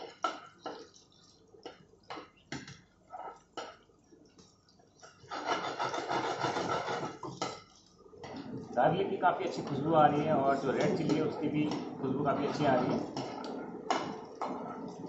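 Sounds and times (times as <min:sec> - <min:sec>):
garlic frying in oil: 0:00.0 - 0:15.0
ladle scraping frying pan: 0:05.1 - 0:08.7.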